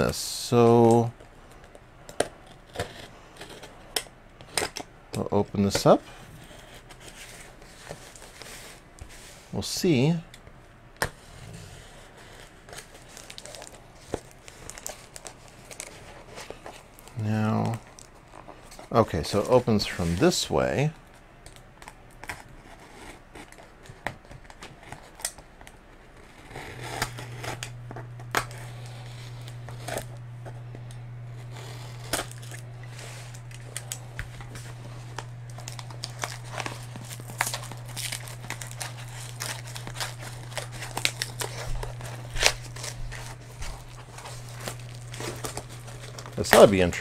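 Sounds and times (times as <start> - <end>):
steady low hum: 0.0 - 47.0
blade cutting tape and cardboard: 26.2 - 30.2, 31.3 - 46.9.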